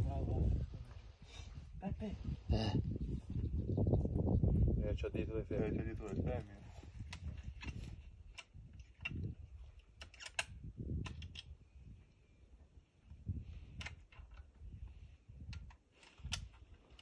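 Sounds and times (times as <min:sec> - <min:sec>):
sharp handling clicks: 0:07.1 - 0:11.5, 0:15.5 - 0:17.0.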